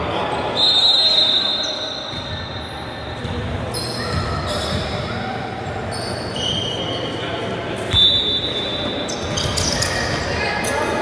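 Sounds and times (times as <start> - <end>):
balls bouncing on gym floor: 2.1 - 5.0.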